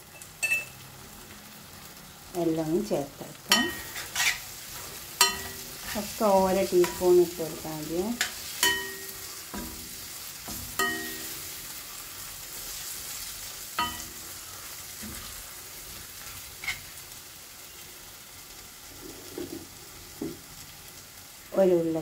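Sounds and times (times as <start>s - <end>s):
food sizzling in a pan: 0.0s - 22.0s
metal spoon knocking on pan: 3.5s - 3.9s, 5.2s - 5.6s, 8.2s - 9.9s, 10.5s - 11.4s, 13.8s - 14.2s.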